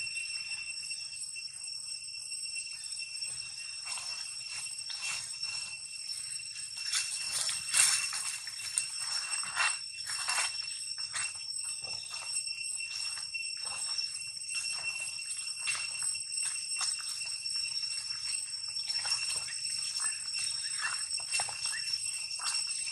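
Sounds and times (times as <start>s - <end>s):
high-pitched insect chorus: 0.0s - 22.9s
dry leaves rustling and crunching: 6.8s - 12.0s.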